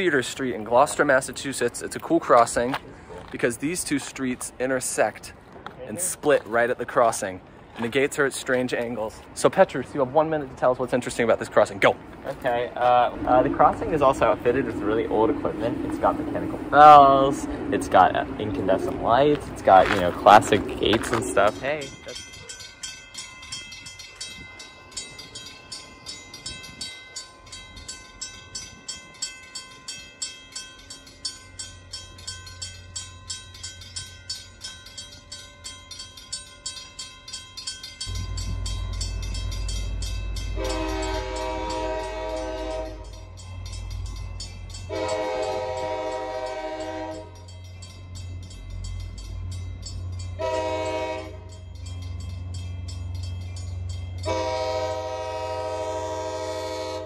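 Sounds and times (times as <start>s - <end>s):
train rumble: 0.0s - 57.0s
crossing bell ringing: 6.0s - 57.0s
locomotive horn blasts: 40.5s - 43.3s, 44.9s - 47.5s, 50.4s - 51.6s, 54.2s - 57.0s.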